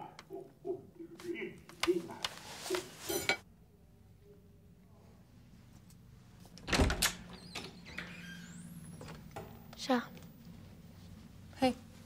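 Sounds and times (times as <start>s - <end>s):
door squeaking open: 6.7s - 9.3s.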